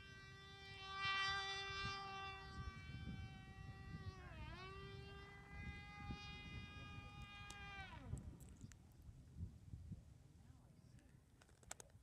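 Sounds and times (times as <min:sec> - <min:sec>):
model airplane engine buzzing: 0:00.0 - 0:09.5.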